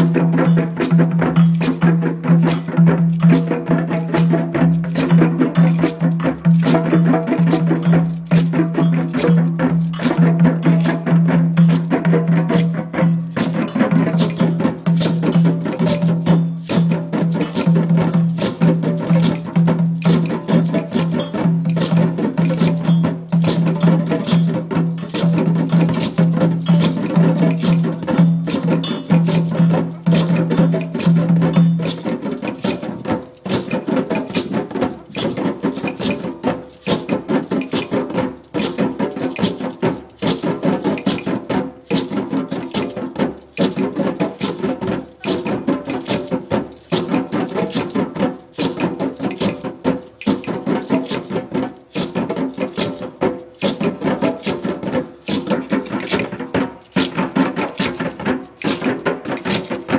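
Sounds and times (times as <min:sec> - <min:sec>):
hand drum strokes: 0:00.0 - 0:59.9.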